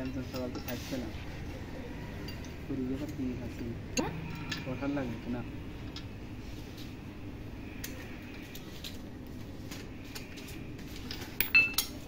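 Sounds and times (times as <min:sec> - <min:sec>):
metal tools being handled: 0:00.0 - 0:01.2, 0:02.2 - 0:05.0, 0:09.6 - 0:12.0
steady low hum: 0:00.0 - 0:12.0.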